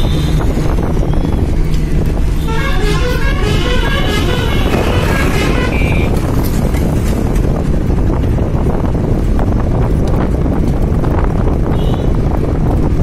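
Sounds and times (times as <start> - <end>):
moving vehicle rumble: 0.0 - 13.0
wind buffeting microphone: 0.0 - 13.0
car horn honking: 2.4 - 6.4.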